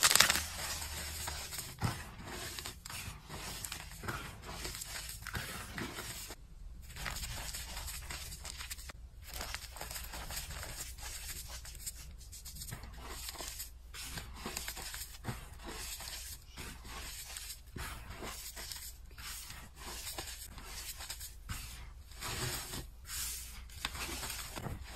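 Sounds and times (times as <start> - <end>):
hands crunching chalk: 0.0 - 6.4.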